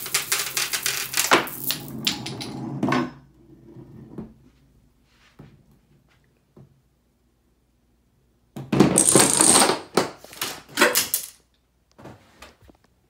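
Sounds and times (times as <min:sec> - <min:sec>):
wooden blocks and dominoes clattering: 0:00.0 - 0:02.6, 0:08.9 - 0:11.4.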